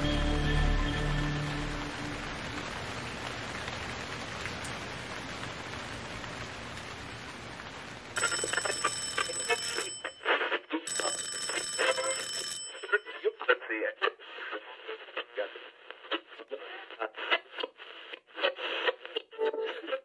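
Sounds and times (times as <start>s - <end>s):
steady rain falling: 0.0s - 9.5s.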